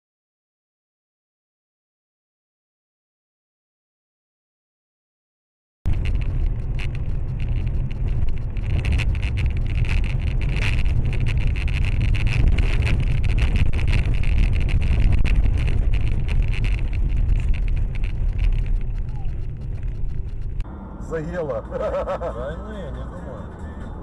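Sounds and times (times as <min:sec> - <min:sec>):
small clicks and rattles: 0:05.9 - 0:20.6
car driving rumble: 0:05.9 - 0:24.0.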